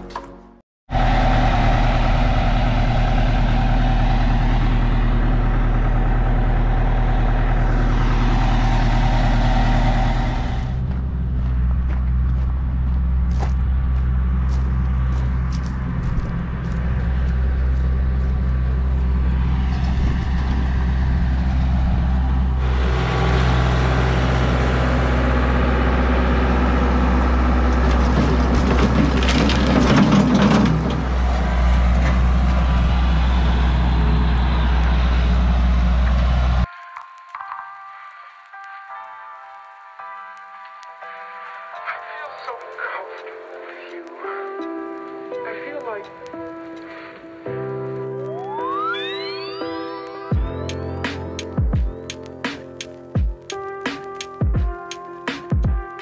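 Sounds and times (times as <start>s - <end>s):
heavy equipment engines running: 0.9s - 36.7s
soil tipping into truck bed: 27.7s - 31.1s.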